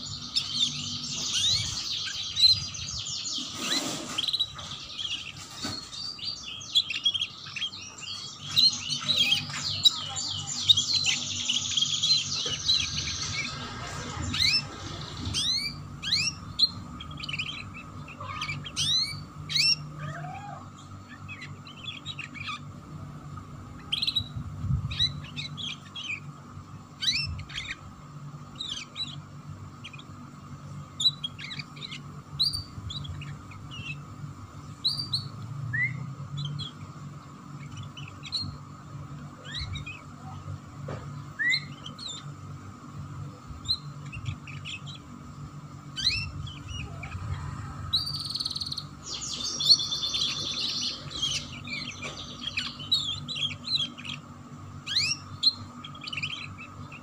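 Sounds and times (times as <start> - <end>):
canary singing: 0.0 - 57.0.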